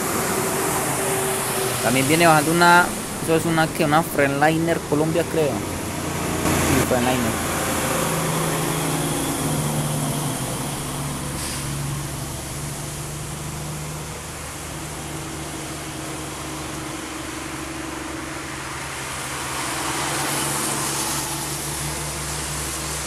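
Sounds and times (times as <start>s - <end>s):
diesel truck engine humming: 0.0s - 23.0s
tyres hissing on wet road: 0.0s - 23.0s.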